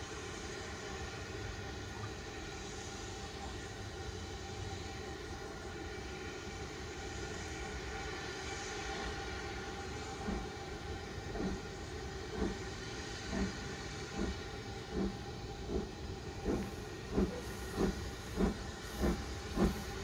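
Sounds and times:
steam locomotive rumble: 0.0 - 20.0
locomotive exhaust beats: 9.9 - 20.0.

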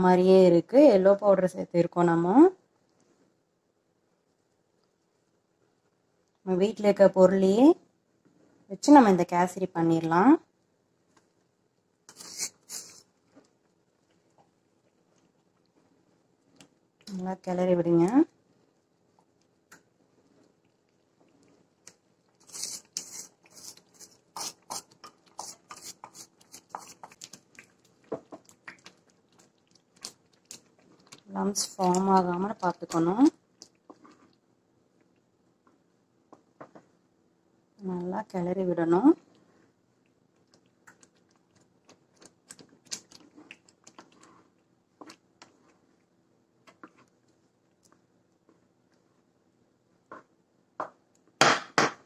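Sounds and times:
wooden spatula scraping a pan: 22.5 - 27.2.

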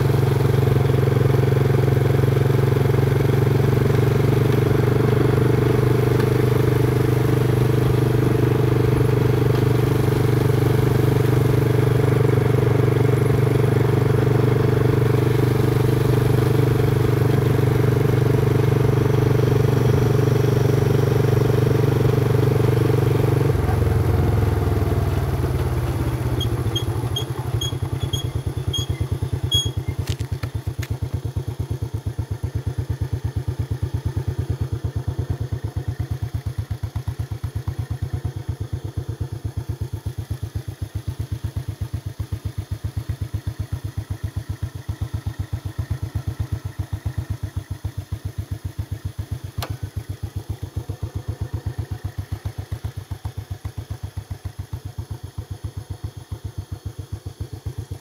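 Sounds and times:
motorcycle engine running: 0.0 - 58.0
short high beeps: 26.4 - 30.0.

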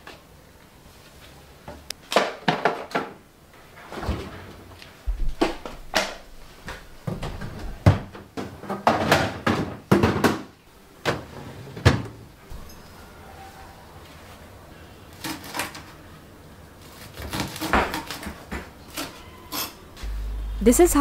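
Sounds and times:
plastic boxes knocking and clattering: 2.1 - 3.2, 7.1 - 12.1.

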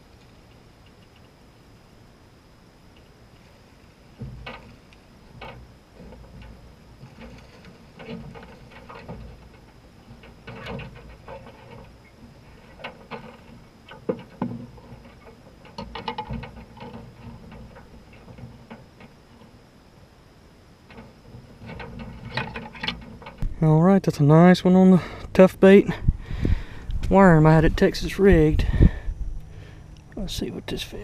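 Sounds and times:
knocks and rattles in boat: 4.1 - 19.7, 20.8 - 23.5
rattling clicks: 4.2 - 19.6, 20.8 - 23.5.

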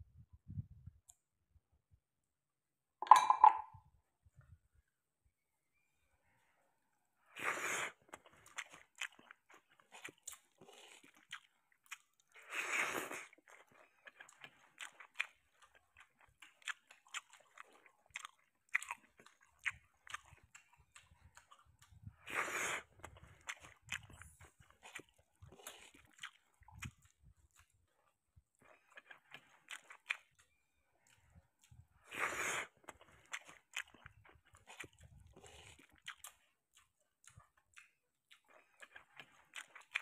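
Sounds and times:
noisy bursts of eating: 6.4 - 40.0
person chewing food: 7.2 - 40.0
wet mouth clicks and smacks: 35.8 - 40.0.

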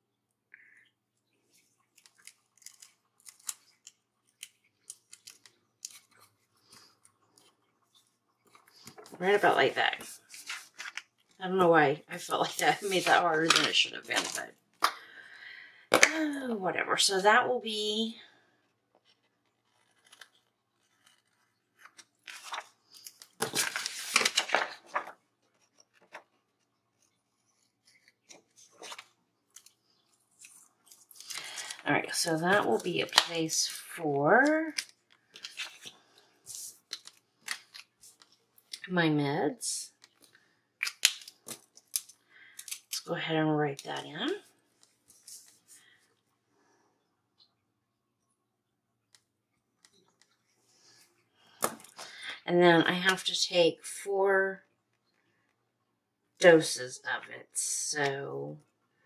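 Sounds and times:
paper rustling: 1.5 - 11.4, 12.1 - 14.5, 18.9 - 38.5
scissors snipping paper: 2.0 - 6.1.

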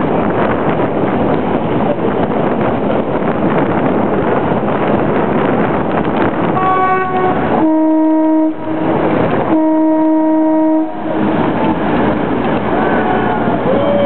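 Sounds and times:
wind: 0.0 - 14.0
boat horn blasts: 6.5 - 11.8.

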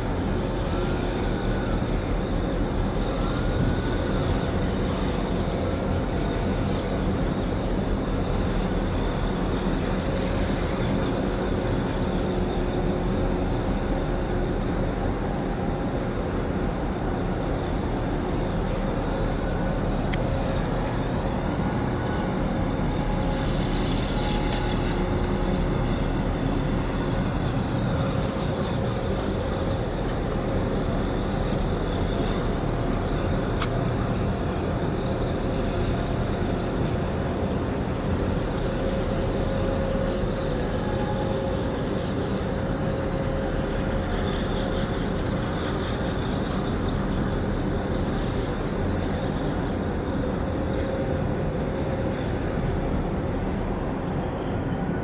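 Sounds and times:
ship engines droning: 0.0 - 55.0
wind: 0.0 - 55.0
water noise: 14.5 - 34.9.

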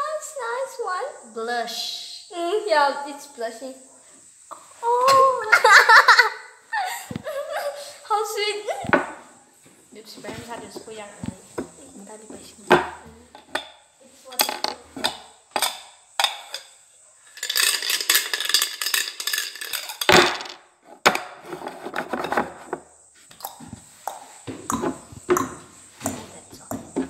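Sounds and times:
rustling: 6.9 - 20.6
small objects clicking and knocking: 12.6 - 27.0.

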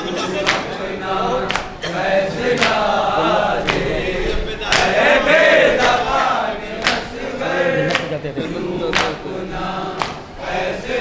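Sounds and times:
men's chorus chanting in unison: 0.0 - 11.0
hands slapping on chests: 1.5 - 1.7, 2.6 - 2.8, 3.6 - 3.9, 4.7 - 5.0, 6.8 - 7.1, 7.8 - 8.2, 8.9 - 9.2, 10.0 - 10.2.

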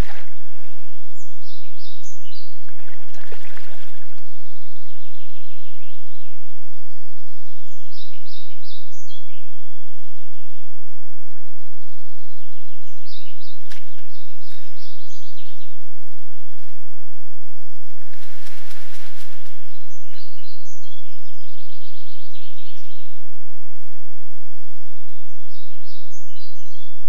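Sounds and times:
songbird singing: 0.0 - 27.0
steady low hum: 0.0 - 27.0.

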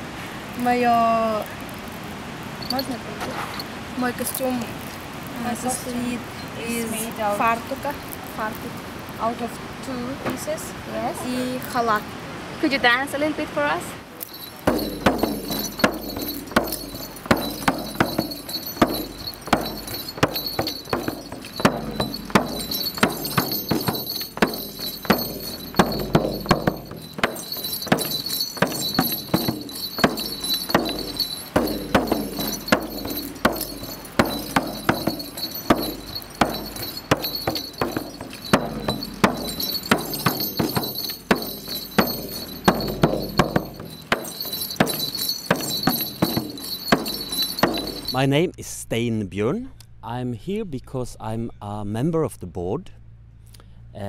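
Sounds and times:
frame drum struck with beater: 14.3 - 48.2.

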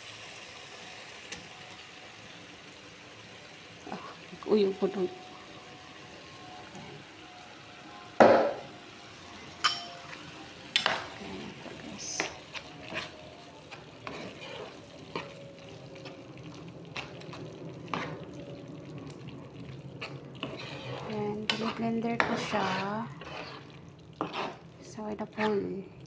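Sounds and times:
sauce sizzling faintly: 0.0 - 26.0
spoon knocking and scraping a pan: 8.2 - 8.7, 9.6 - 11.2, 12.0 - 15.4, 20.0 - 24.6
spoon stirring sauce in a pan: 9.6 - 25.6.

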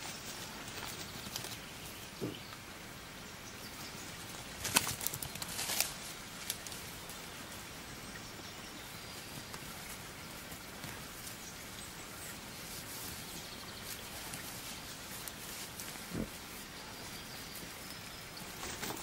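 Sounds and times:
piglets rustling in blanket: 0.0 - 2.4, 4.2 - 7.2, 9.2 - 19.0
steady outdoor hiss: 0.0 - 19.0.

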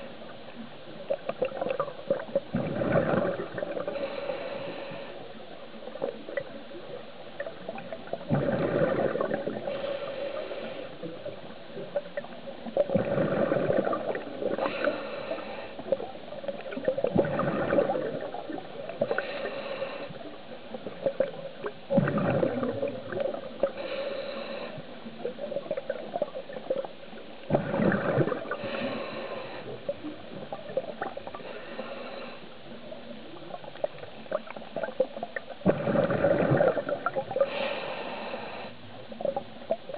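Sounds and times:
bubbles gurgling underwater: 1.0 - 4.0, 6.0 - 9.7, 11.2 - 14.7, 15.9 - 19.2, 20.7 - 23.8, 25.2 - 28.9, 29.9 - 31.4, 33.3 - 37.6
regulator inhalation hiss: 3.9 - 5.4, 9.6 - 11.3, 14.5 - 16.0, 19.0 - 20.3, 23.7 - 25.0, 28.6 - 29.9, 31.4 - 32.6, 37.4 - 38.9.

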